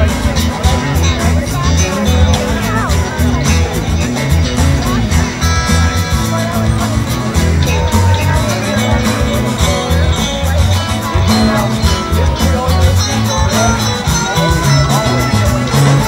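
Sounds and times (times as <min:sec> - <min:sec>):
drum kit: 0:00.0 - 0:16.0
electric bass: 0:00.0 - 0:16.0
strummed acoustic guitar: 0:00.0 - 0:16.0.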